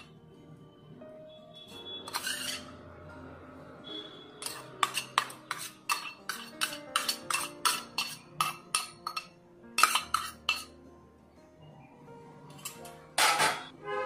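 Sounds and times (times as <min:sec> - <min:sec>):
spoon clinking on steel bowl: 0:04.4 - 0:10.7.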